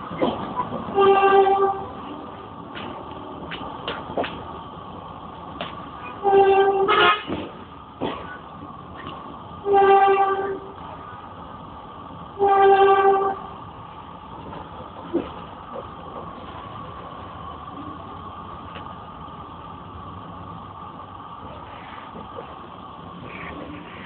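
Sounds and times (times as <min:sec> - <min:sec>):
moving train running noise: 0:00.0 - 0:24.0
train horn blasts: 0:00.9 - 0:01.9, 0:06.2 - 0:07.4, 0:09.6 - 0:10.8, 0:12.4 - 0:13.5.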